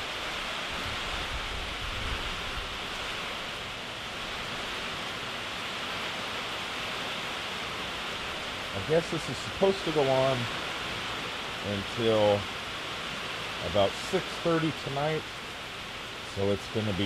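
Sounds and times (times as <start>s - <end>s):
heavy rain falling: 0.0s - 17.0s.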